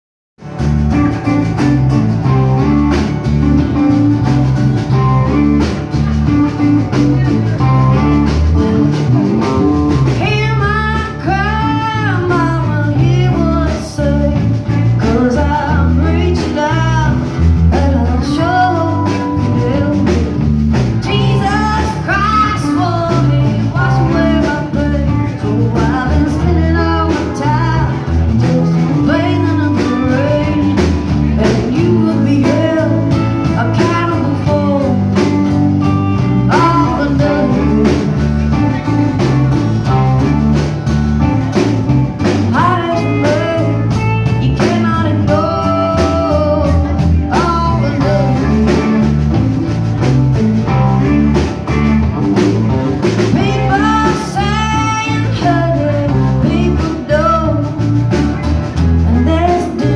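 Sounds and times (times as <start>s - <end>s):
country-rock band playing: 0.4s - 59.9s
woman singing: 10.1s - 40.3s, 41.5s - 49.4s, 53.2s - 59.9s.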